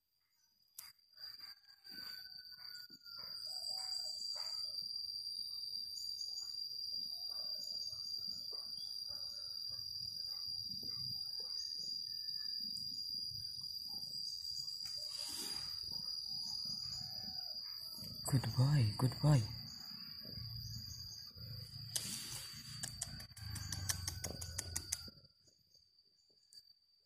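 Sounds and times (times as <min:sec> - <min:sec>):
rustling hiss: 0:14.9 - 0:16.0, 0:21.7 - 0:23.7.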